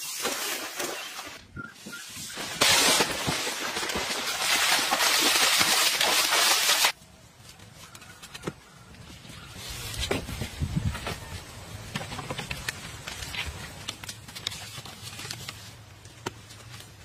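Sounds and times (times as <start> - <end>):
water splashing: 2.6 - 7.0.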